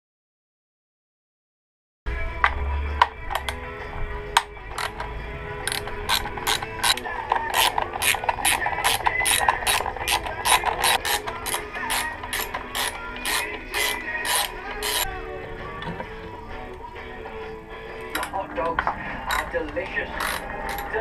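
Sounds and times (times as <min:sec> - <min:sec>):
socket ratchet clicking: 0:03.3 - 0:03.6, 0:04.4 - 0:15.1, 0:19.3 - 0:19.5, 0:20.2 - 0:21.0.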